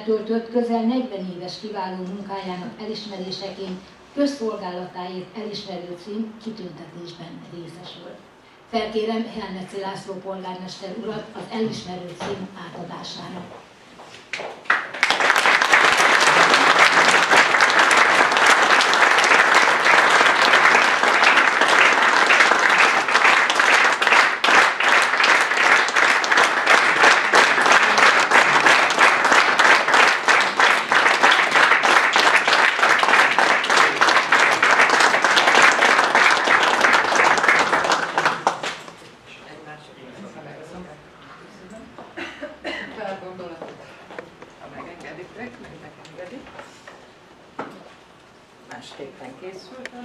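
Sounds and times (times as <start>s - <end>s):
audience applauding: 14.4s - 39.0s.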